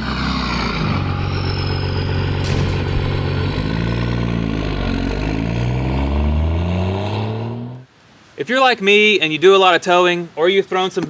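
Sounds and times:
motor engine revving: 0:00.0 - 0:07.9.

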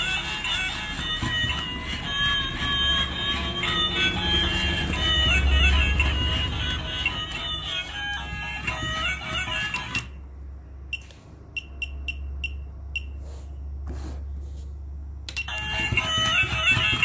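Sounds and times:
melody: 0:00.0 - 0:10.2.

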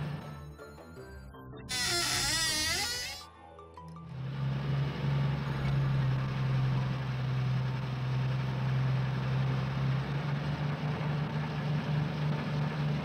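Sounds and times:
truck engine running: 0:04.1 - 0:13.0.

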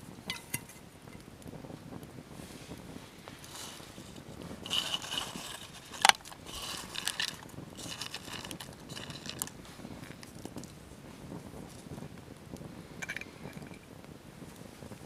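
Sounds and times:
dry leaves rustling into water: 0:03.5 - 0:10.6.

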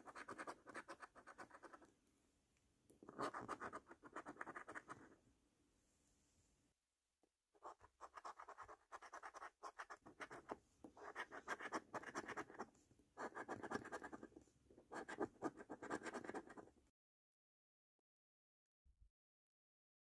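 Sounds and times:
coin scratching a scratchcard: 0:00.0 - 0:01.8, 0:03.1 - 0:05.0, 0:07.6 - 0:12.6, 0:15.0 - 0:16.6.

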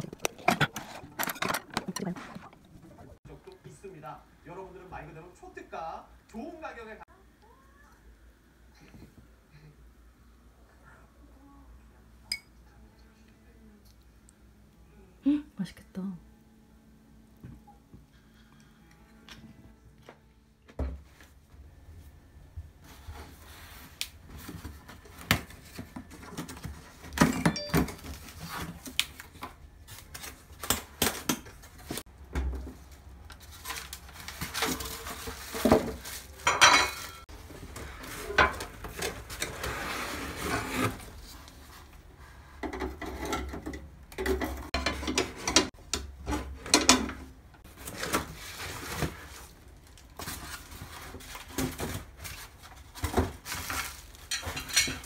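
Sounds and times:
cardboard rustling: 0:33.4 - 0:36.4.

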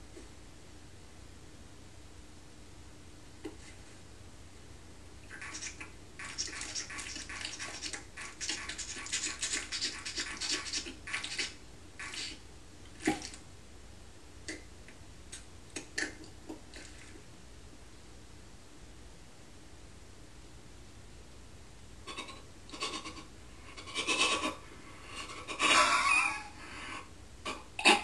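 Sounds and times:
mouth clicks and smacks: 0:05.3 - 0:12.4, 0:14.4 - 0:17.0, 0:22.1 - 0:24.6
wet sucking and slurping: 0:05.3 - 0:12.4.

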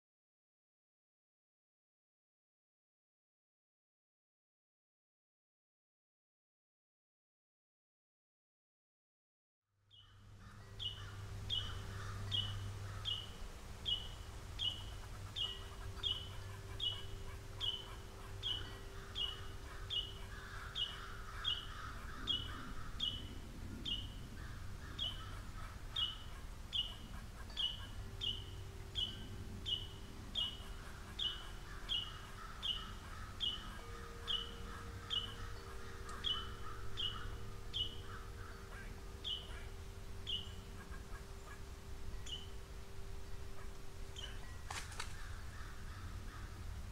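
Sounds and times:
faint birdsong: 0:09.8 - 0:46.9
songbird call note: 0:09.9 - 0:46.6.

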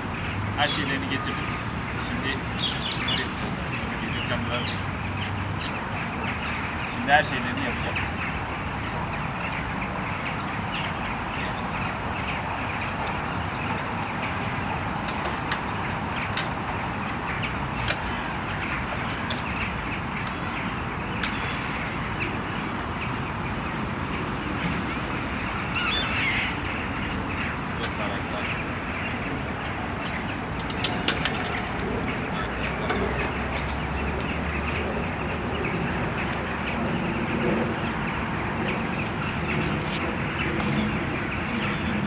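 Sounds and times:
outdoor background noise: 0:00.0 - 0:42.0
wavering bird call: 0:25.6 - 0:27.5.

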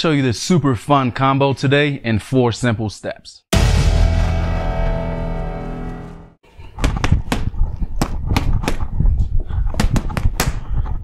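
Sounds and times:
music: 0:03.5 - 0:06.4.

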